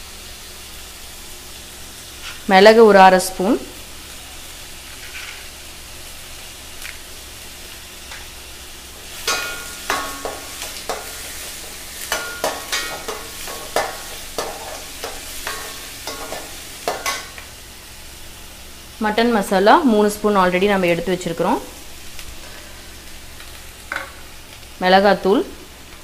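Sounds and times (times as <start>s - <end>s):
food sizzling in hot oil: 0.0s - 26.0s
spatula scraping a pan: 9.2s - 17.4s.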